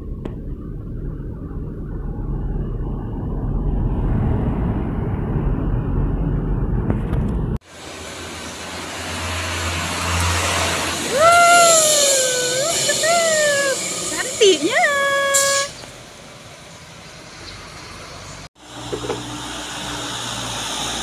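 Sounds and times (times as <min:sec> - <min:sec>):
truck engine rumble: 0:00.0 - 0:21.0
hissy truck engine humming: 0:07.7 - 0:21.0.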